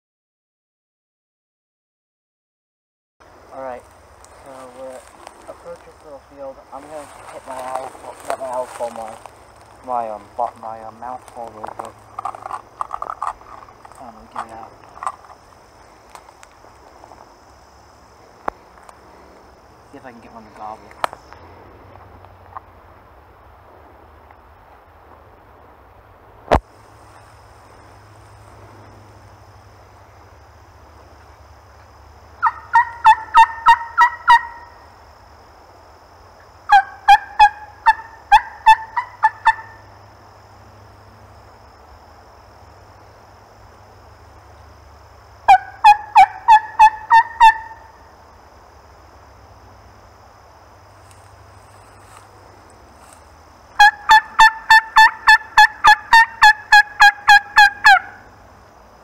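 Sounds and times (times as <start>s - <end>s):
turkey call yelps: 32.4s - 34.9s, 36.7s - 39.9s, 45.5s - 48.1s, 53.8s - 58.3s.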